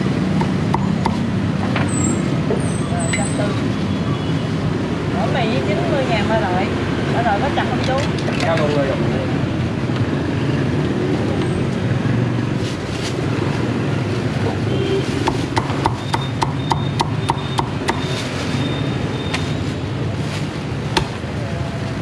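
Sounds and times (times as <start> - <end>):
street traffic noise: 0.0 - 22.0
cleaver chopping on wooden block: 15.2 - 18.0.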